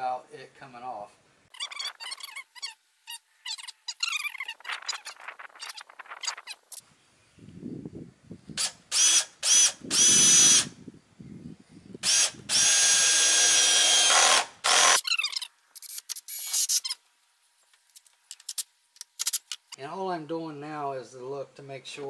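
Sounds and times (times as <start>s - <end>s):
cordless drill driving screws: 8.6s - 10.6s, 12.0s - 15.2s.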